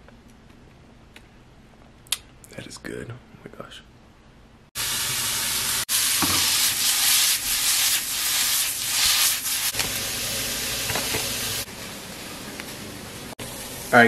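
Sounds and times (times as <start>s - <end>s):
chicken sizzling in a frying pan: 4.8s - 14.0s.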